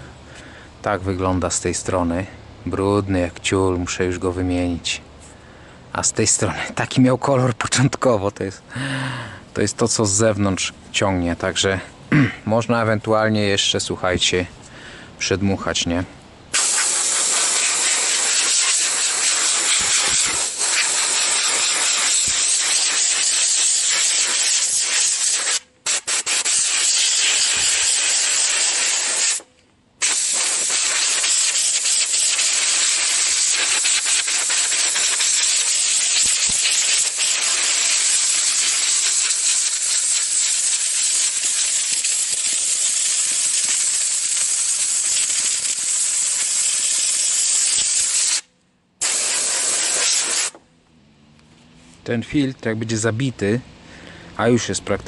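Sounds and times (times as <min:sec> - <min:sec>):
compressed air hissing: 0:16.5 - 0:50.6.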